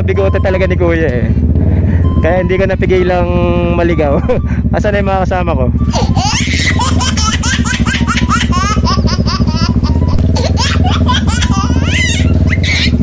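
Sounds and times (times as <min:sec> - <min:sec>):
motorcycle engine running: 0:00.0 - 0:13.0
high-pitched laughing: 0:05.9 - 0:13.0.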